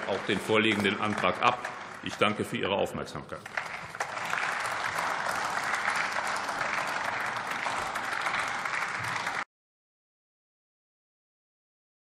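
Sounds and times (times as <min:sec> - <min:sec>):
people applauding: 0:00.0 - 0:09.5.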